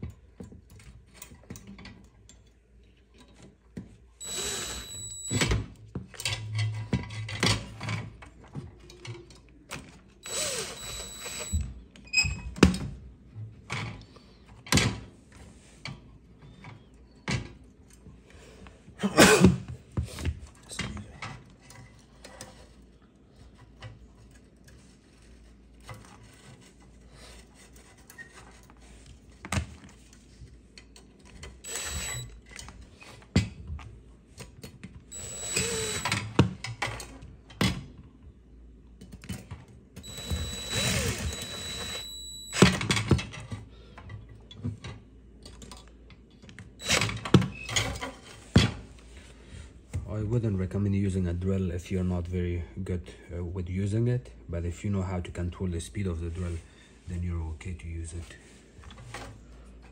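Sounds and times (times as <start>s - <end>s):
clicks and knocks of handled parts: 0.0s - 3.9s, 39.0s - 40.1s, 42.7s - 48.2s
cordless drill motor whine: 4.2s - 5.6s, 10.2s - 11.8s, 31.6s - 32.4s, 35.1s - 36.4s, 40.0s - 42.9s, 46.8s - 47.6s.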